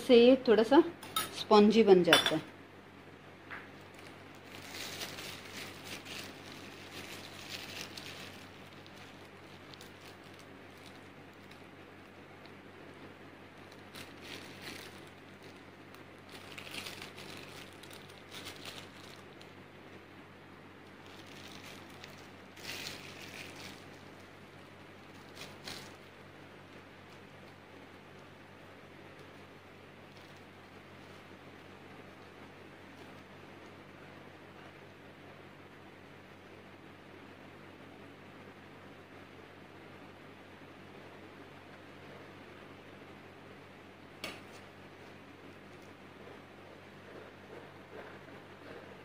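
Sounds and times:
low steady hum: 0.0 - 49.0
plastic bag crinkling: 3.6 - 19.6, 20.8 - 33.8.

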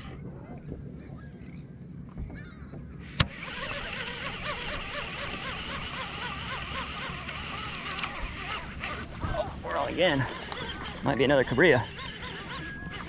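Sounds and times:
fishing reel gears whirring: 3.0 - 13.0.

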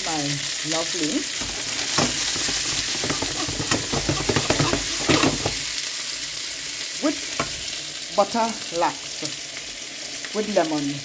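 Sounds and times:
vegetables sizzling in hot oil: 0.0 - 11.0
stirring clicks and scrapes: 1.4 - 5.6.

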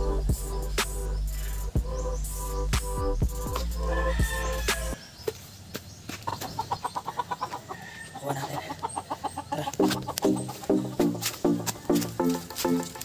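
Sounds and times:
music with steady beat: 0.0 - 5.0, 9.8 - 13.0
chicken clucking: 6.1 - 12.1.

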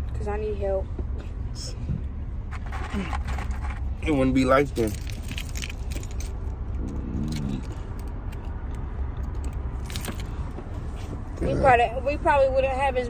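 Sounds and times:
car interior rumble: 0.0 - 13.0
person murmuring: 11.4 - 11.8.

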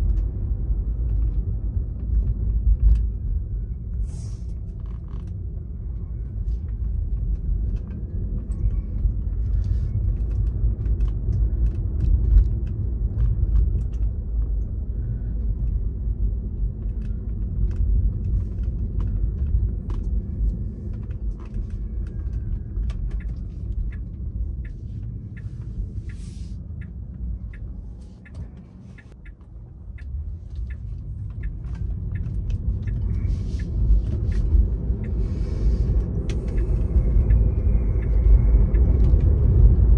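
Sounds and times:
car road and engine rumble: 0.0 - 39.9
light ticks: 16.8 - 39.9.

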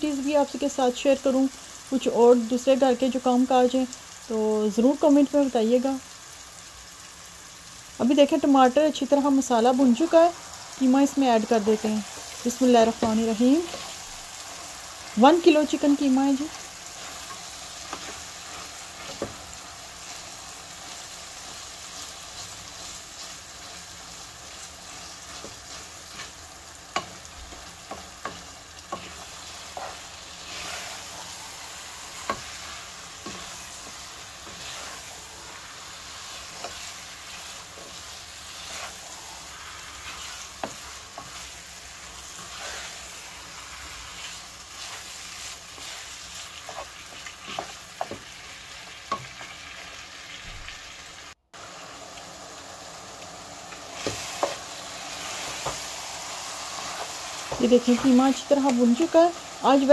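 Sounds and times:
mince sizzling in pot: 0.0 - 59.9
spatula knocking and scraping pot: 46.7 - 48.3.

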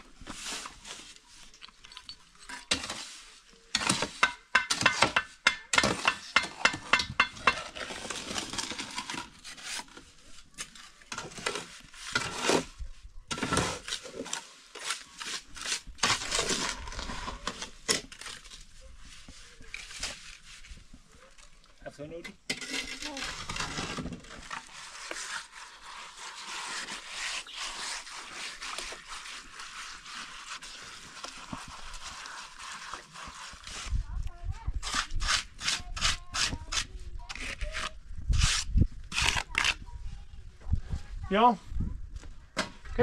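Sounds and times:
shovel scraping metal wheelbarrow: 2.4 - 18.6, 22.5 - 34.0.

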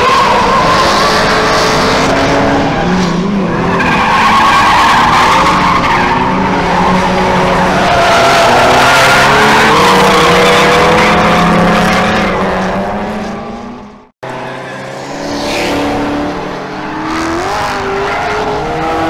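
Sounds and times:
tyres squealing and skidding: 0.0 - 13.7.

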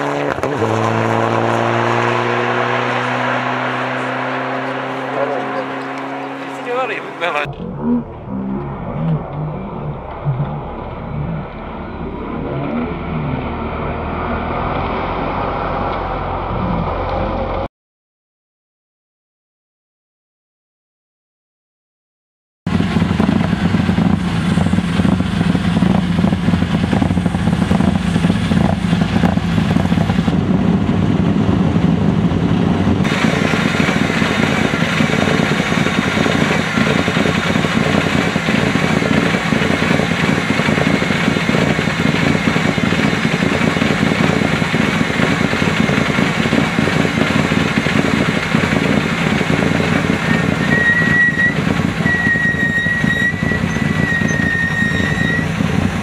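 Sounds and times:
rally car engines driving on gravel: 0.0 - 12.0, 22.7 - 56.0
thin wavering high whine: 7.0 - 17.5.

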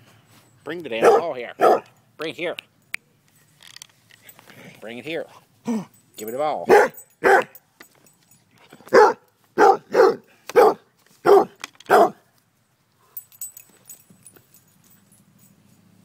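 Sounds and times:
dog barking: 1.0 - 1.9, 6.7 - 7.6, 8.9 - 12.2
faint clicks and rustles: 10.4 - 16.0.

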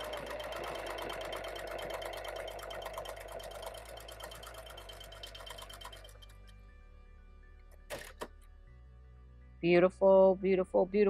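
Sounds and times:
sewing machine stitching: 0.0 - 6.5.

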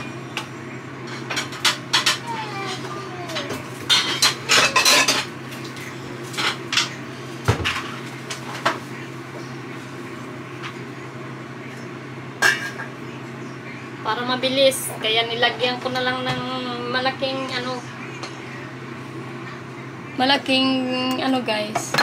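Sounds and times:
steady low hum: 0.0 - 22.0
pots and pans clanking: 1.0 - 8.8, 12.4 - 13.0.

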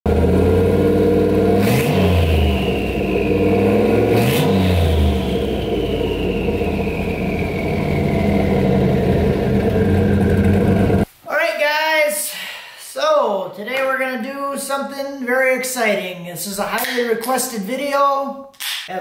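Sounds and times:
car engine idling and revving: 0.1 - 11.1
high whine: 0.1 - 11.1.

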